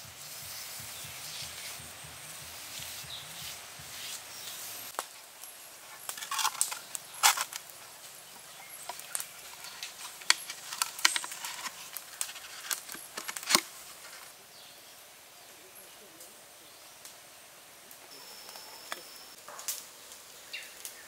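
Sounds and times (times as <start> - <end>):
bamboo tubes knocking and scraping: 5.8 - 14.4.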